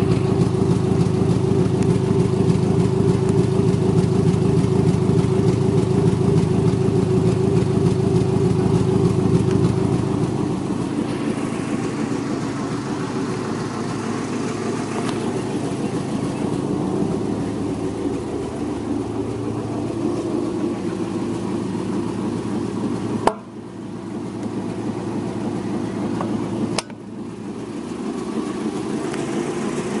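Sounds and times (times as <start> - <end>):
car engine idling: 0.0 - 30.0.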